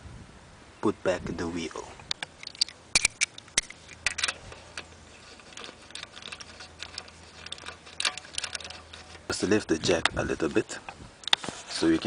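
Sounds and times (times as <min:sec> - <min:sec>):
socket clicking on wheel nuts: 0:02.1 - 0:09.3.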